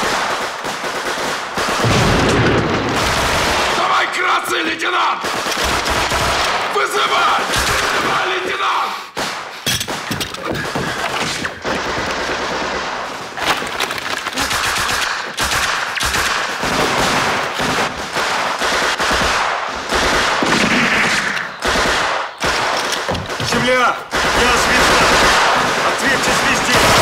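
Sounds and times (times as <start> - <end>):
automatic gunfire bursts: 0.0 - 4.1, 5.2 - 8.3, 9.2 - 13.4, 14.3 - 27.0
single gunshots: 14.4 - 27.0.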